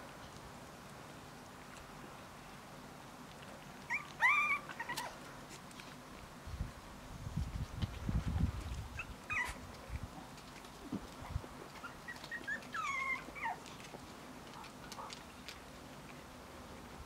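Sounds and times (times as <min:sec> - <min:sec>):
puppies whimpering: 0:03.8 - 0:05.3, 0:08.9 - 0:09.7, 0:11.7 - 0:13.9.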